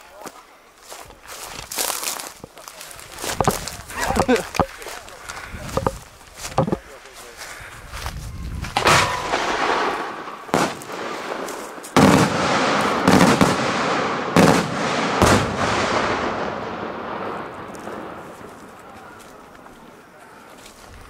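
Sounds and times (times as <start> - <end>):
fireworks bangs: 8.8 - 20.0
rolling echo: 8.8 - 20.3.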